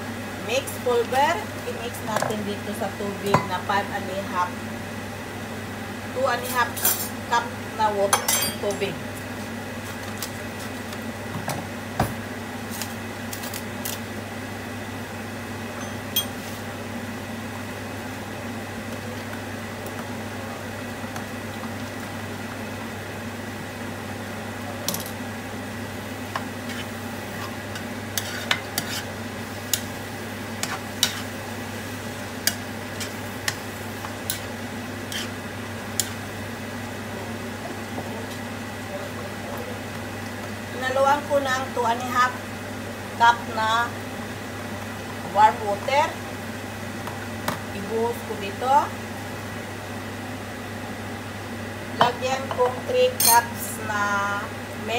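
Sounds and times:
meat sizzling in a frying pan: 25.6s - 38.6s.

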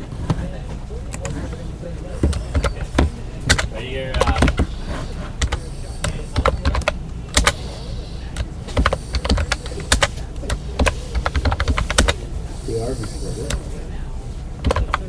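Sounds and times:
steady low hum: 0.0s - 15.0s
keyboard key clicks: 5.4s - 7.6s, 8.4s - 12.2s, 14.6s - 15.0s.

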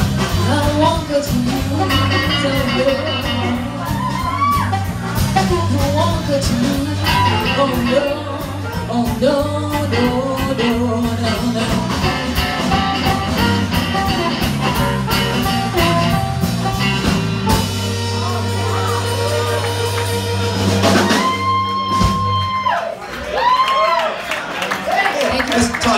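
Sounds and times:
live blues band playing: 0.0s - 24.0s
harmonica long high note: 12.8s - 22.6s.

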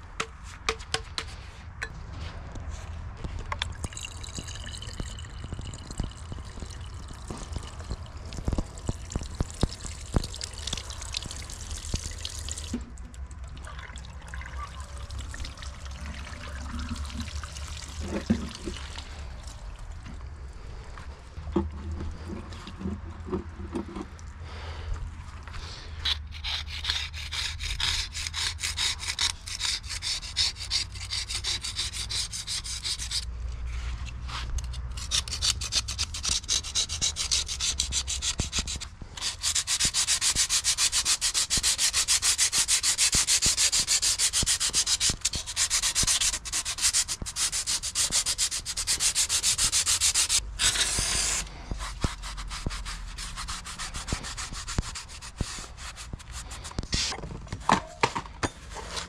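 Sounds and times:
hand scrubbing a hard surface: 35.1s - 57.2s.

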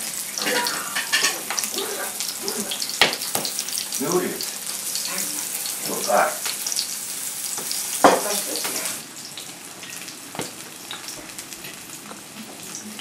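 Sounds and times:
dishes and cutlery clinking: 0.4s - 1.7s, 7.6s - 8.4s, 9.8s - 12.6s.

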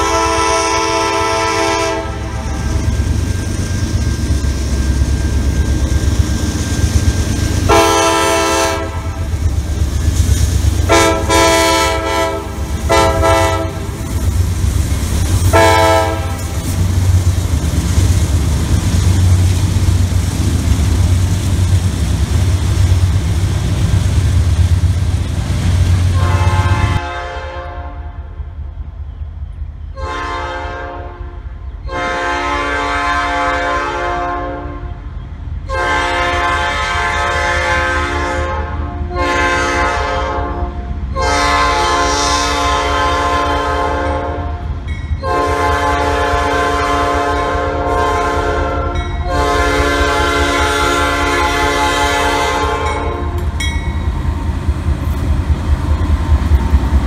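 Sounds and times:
locomotive air horn blasts: 0.0s - 3.0s, 7.6s - 9.4s, 10.8s - 14.2s, 15.4s - 16.9s, 26.1s - 28.3s, 29.9s - 35.0s, 35.7s - 53.6s
low engine rumble: 2.0s - 27.0s.

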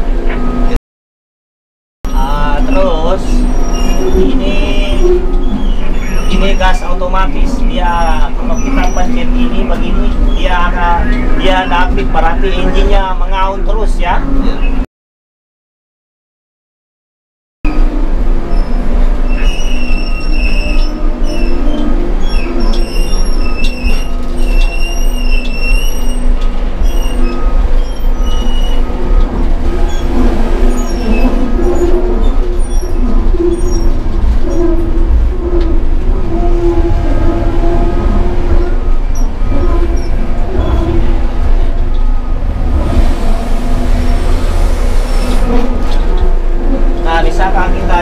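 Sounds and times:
diesel engines rumbling: 2.1s - 14.8s, 17.7s - 48.0s
high squealing tones: 2.1s - 14.8s, 17.7s - 48.0s.

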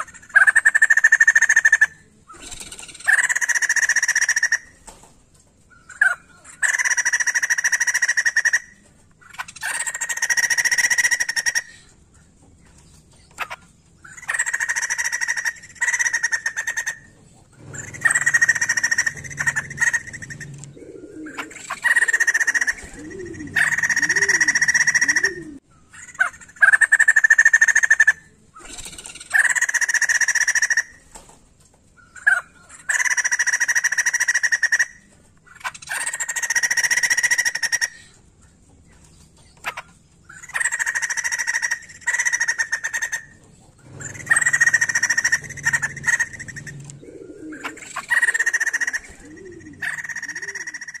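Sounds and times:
bird chattering calls: 13.3s - 30.9s, 39.7s - 51.0s.

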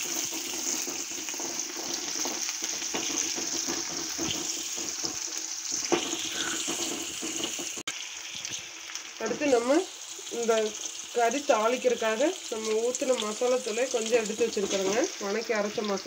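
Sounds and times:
food sizzling in hot oil: 0.0s - 16.0s
spatula knocking against pan: 2.2s - 7.8s.

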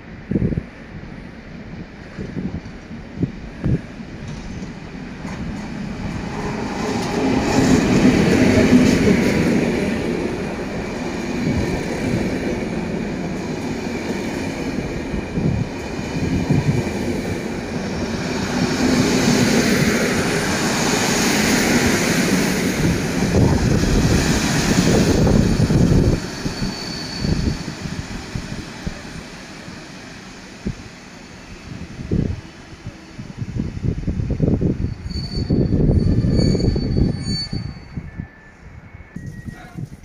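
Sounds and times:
train wheels rumbling on rails: 0.0s - 40.0s.

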